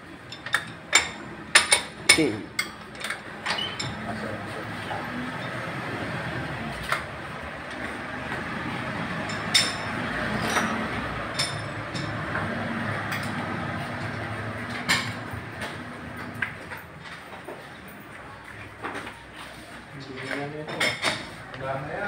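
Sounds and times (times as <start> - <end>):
repair shop din: 0.0 - 22.0
metallic clanks of tools: 0.3 - 4.2, 9.2 - 12.3.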